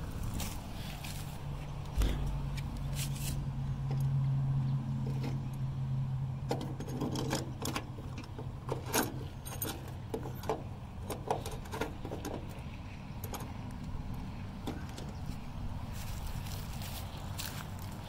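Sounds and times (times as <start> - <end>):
steady low hum: 0.0 - 18.0
metal gas cap clicking and scraping: 6.5 - 13.6.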